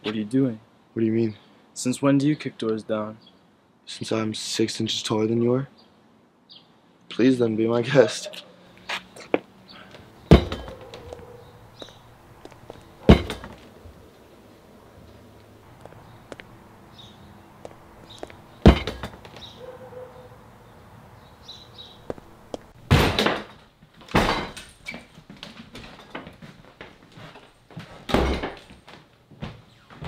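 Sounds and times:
door kicked in: 10.3s - 10.9s, 13.0s - 13.6s, 18.6s - 19.4s, 22.9s - 24.7s, 28.1s - 28.6s
loud bangs: 10.3s - 10.9s, 18.6s - 19.4s.

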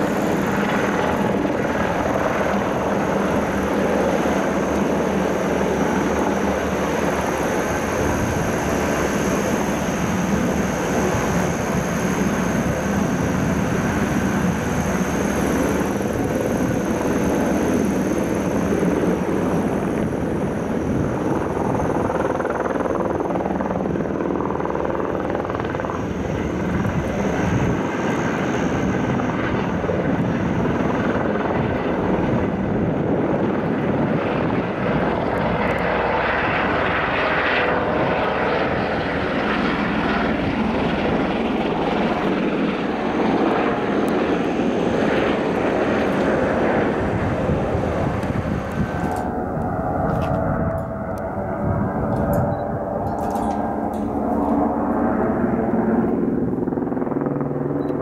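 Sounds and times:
helicopter engine and rotor drone: 0.0s - 58.0s
thin high turbine whine: 0.0s - 58.0s.

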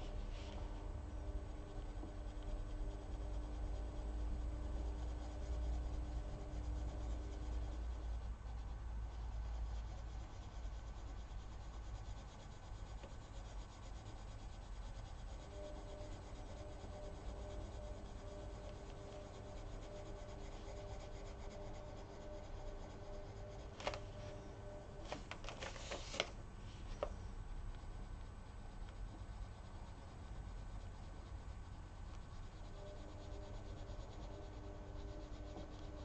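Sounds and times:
coloured pencil rubbing on paper: 0.0s - 24.8s
faint steady hum: 0.0s - 36.0s.

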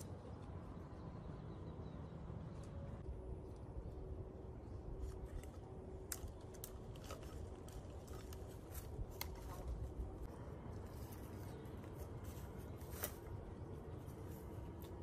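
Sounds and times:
rustling of dry wood: 4.8s - 15.0s
dry twigs cracking and snapping: 4.9s - 10.3s, 10.9s - 13.4s, 14.6s - 15.0s.

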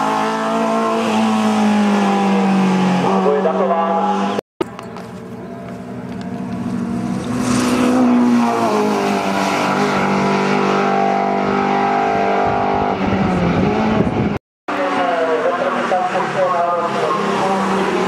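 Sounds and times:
race car engine at high revs: 0.0s - 18.0s.

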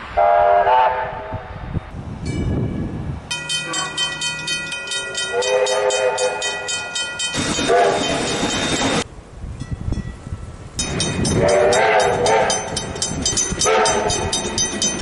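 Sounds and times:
steam locomotive whistle: 0.2s - 1.4s, 5.3s - 6.8s, 7.4s - 8.6s, 11.3s - 12.7s, 13.6s - 14.3s
train horn: 0.2s - 1.4s, 5.2s - 6.6s, 7.4s - 8.2s, 11.3s - 12.7s, 13.6s - 14.3s
level crossing warning bell: 3.3s - 15.0s.

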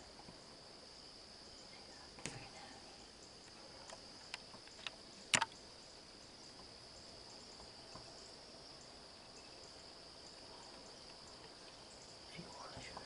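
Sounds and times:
night insects chorus: 0.0s - 13.0s
sharp clicks: 3.9s - 5.6s.

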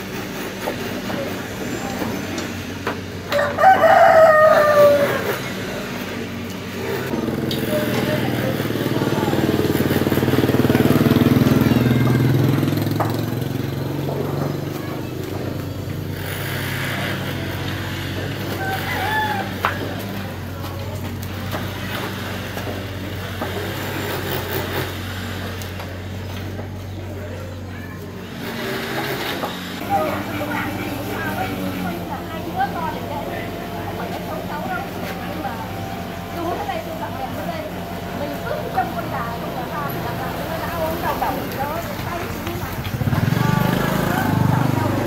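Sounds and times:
rooster crowing: 3.3s - 5.5s, 18.4s - 20.0s.

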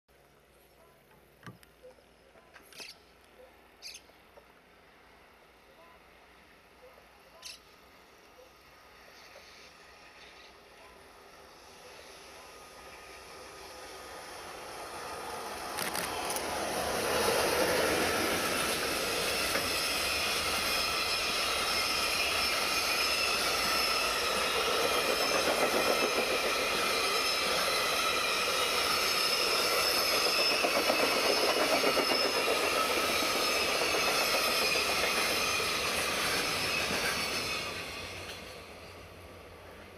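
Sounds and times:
electric locomotive passing: 3.4s - 39.9s.

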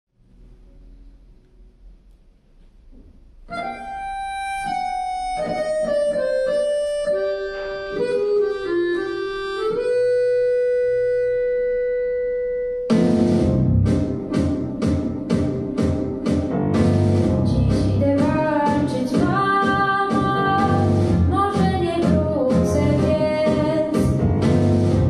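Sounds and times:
wind instrument melody: 3.5s - 13.9s
band playing: 3.6s - 12.0s, 12.8s - 25.0s
drums: 12.9s - 25.0s.

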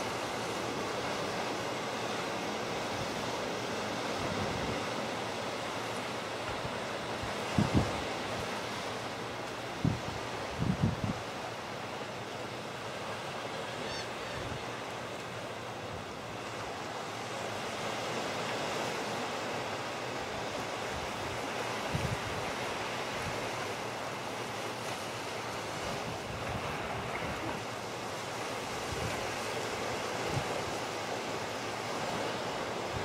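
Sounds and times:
wind rushing across microphone: 7.2s - 8.4s, 9.8s - 11.3s, 21.8s - 22.4s.

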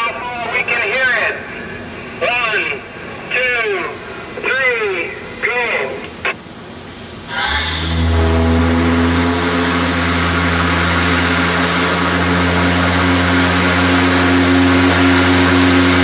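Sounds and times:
steam hissing: 6.9s - 16.0s
steam whistle deep note: 7.3s - 12.3s.

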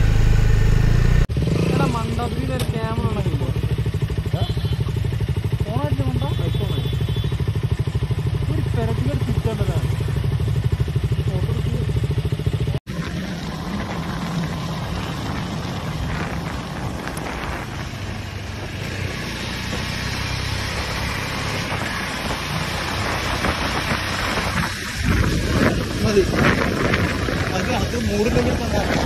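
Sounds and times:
motorcycle riding along road: 0.0s - 29.0s
motorcycle engine idling: 1.9s - 15.0s
wind noise: 13.5s - 29.0s.

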